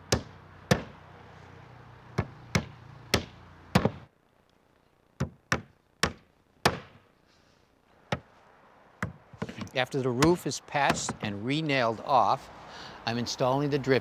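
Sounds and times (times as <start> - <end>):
hammer driving nails into plywood: 2.2 - 4.0, 5.2 - 7.0, 10.9 - 11.3.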